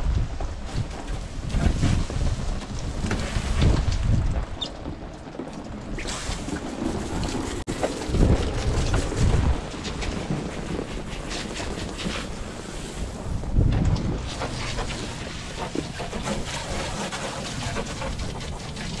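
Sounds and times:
wind gusting on microphone: 0.0 - 19.0
hose spraying water: 5.9 - 8.4, 10.6 - 19.0.

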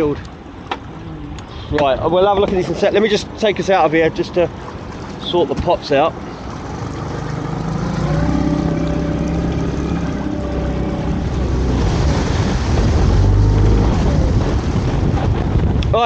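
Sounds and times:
water rushing past hull: 2.6 - 16.0
outboard motor running: 4.2 - 15.9.

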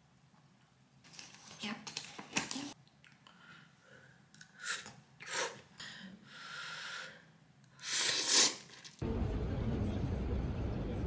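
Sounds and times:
person slurping noodles: 7.8 - 9.0.

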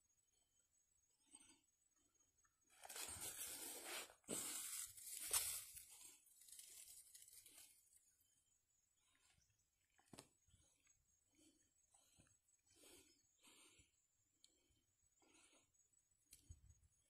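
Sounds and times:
rustling of dry brush: 2.8 - 7.8.

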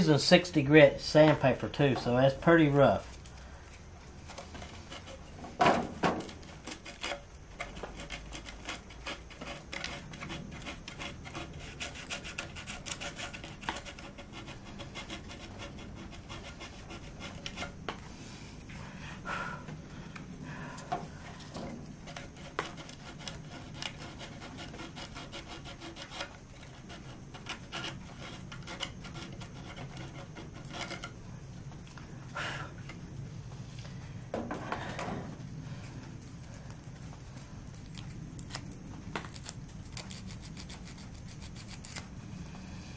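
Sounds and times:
sandpaper scratching plastic: 6.2 - 17.8, 22.0 - 31.1, 38.4 - 42.1.

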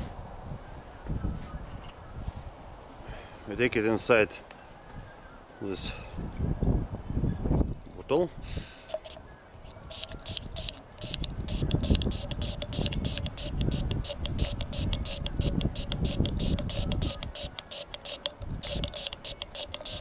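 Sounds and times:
aerosol spray hissing: 9.9 - 20.0.

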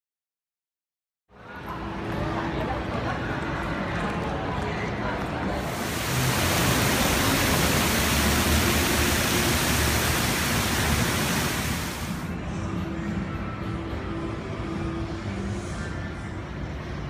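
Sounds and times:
water falling down fountain: 5.6 - 12.3.

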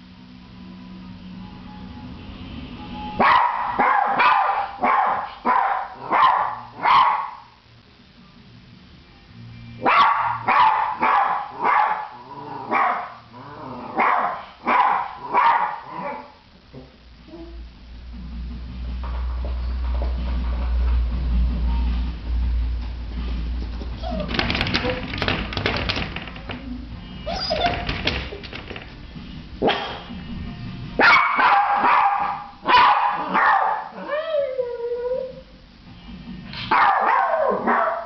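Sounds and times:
small dog barking: 3.2 - 7.5, 9.8 - 13.2, 14.0 - 16.4, 31.0 - 34.1, 36.7 - 38.0.

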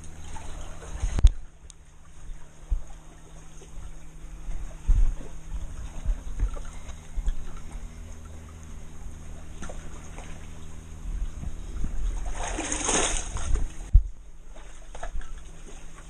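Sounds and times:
water splashing against rocks: 11.4 - 16.0.

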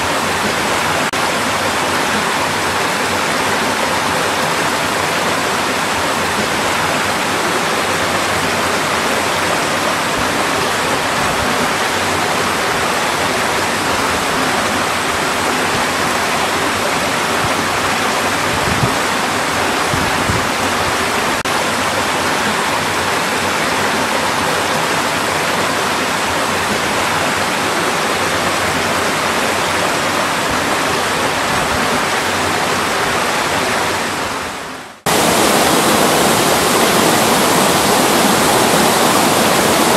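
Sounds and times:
stream rushing: 0.0 - 39.9.

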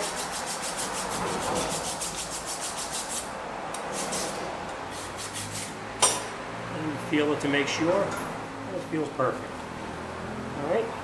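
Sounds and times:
hand file scraping rust: 0.0 - 5.8.

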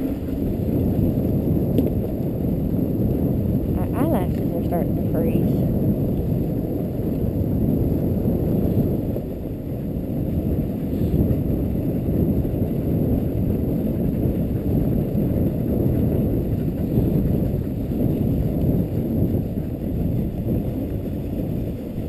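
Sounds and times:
sled runners sliding over snow: 6.5 - 22.0.

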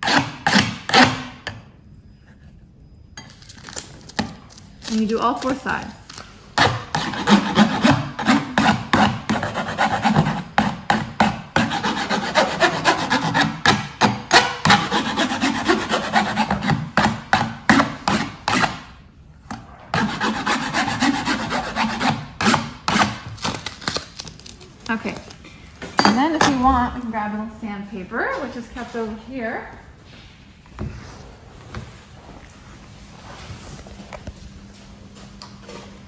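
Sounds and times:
metal file rasping on copper plate: 6.6 - 16.8, 20.0 - 23.0.

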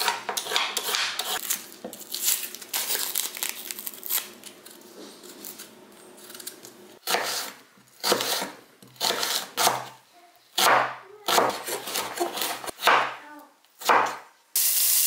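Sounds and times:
onion skin crackling and tearing: 1.4 - 6.7.

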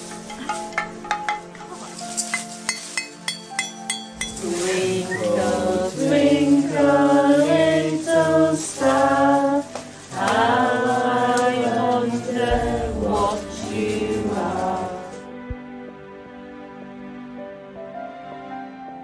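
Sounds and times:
women singing together: 4.3 - 15.3.

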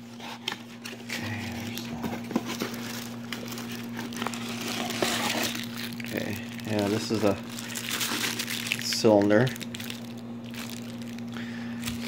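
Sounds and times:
plastic bag crinkling: 0.9 - 12.0.

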